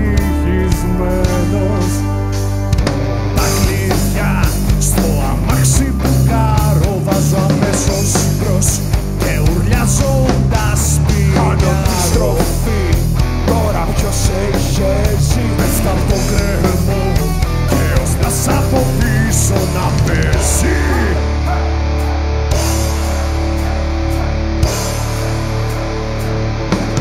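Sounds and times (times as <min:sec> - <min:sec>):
bass guitar: 0:00.0 - 0:27.0
distorted electric guitars: 0:00.0 - 0:27.0
drums: 0:00.0 - 0:27.0.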